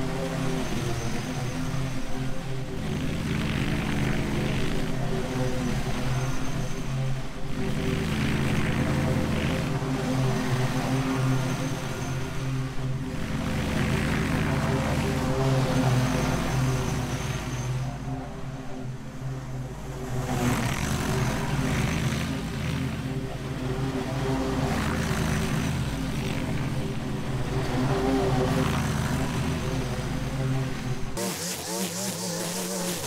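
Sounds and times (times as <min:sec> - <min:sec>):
riding mower cutting grass: 0:02.9 - 0:06.2, 0:06.9 - 0:17.5, 0:20.0 - 0:33.0
wavering motor: 0:20.3 - 0:33.0.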